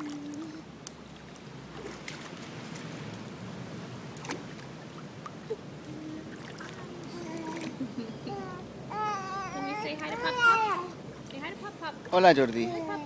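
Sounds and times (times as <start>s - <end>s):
small water splashes: 0.0s - 8.1s, 9.7s - 12.6s
pool water sloshing and lapping: 0.0s - 13.0s.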